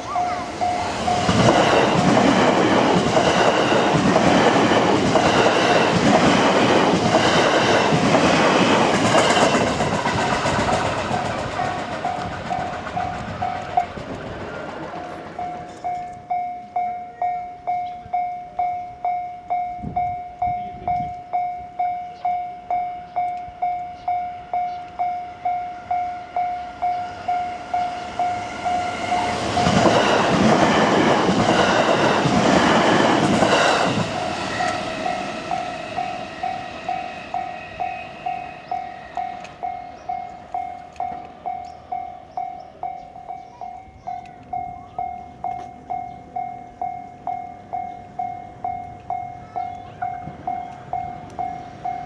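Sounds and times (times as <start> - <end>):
wheel clatter on rail joints: 0.0 - 16.8
electric train passing: 0.0 - 52.0
level-crossing warning bell dinging: 0.0 - 52.0.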